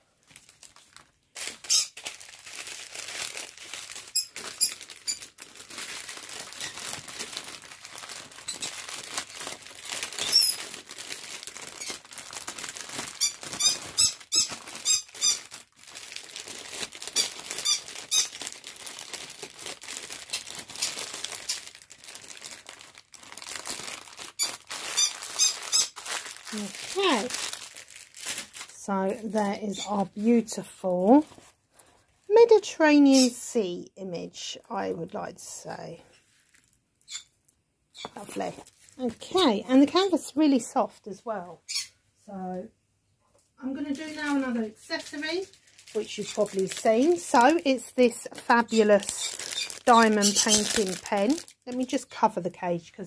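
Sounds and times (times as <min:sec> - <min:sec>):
canvas crinkling and rustling: 0:00.1 - 0:31.9, 0:43.9 - 0:47.6, 0:48.4 - 0:51.8
bird squeaking: 0:01.7 - 0:02.0, 0:10.2 - 0:10.7, 0:13.2 - 0:15.4, 0:17.2 - 0:18.4, 0:24.4 - 0:26.0, 0:37.1 - 0:37.3, 0:38.0 - 0:38.2, 0:41.6 - 0:41.9, 0:49.2 - 0:50.6.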